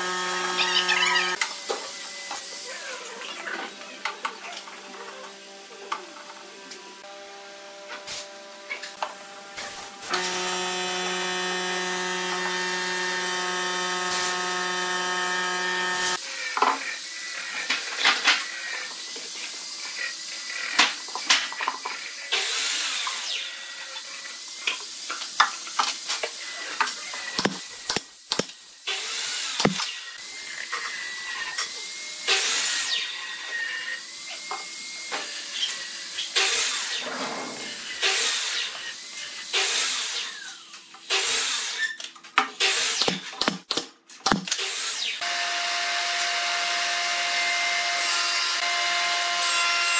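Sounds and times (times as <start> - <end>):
machine humming: 10.1 - 16.2.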